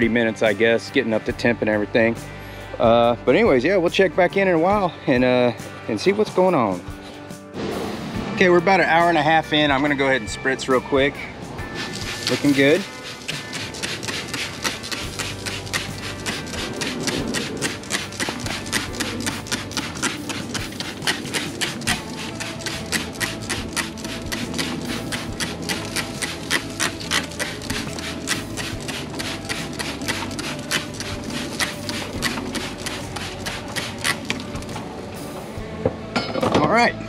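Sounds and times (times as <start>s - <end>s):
spray bottle spritzing: 11.7s - 34.8s.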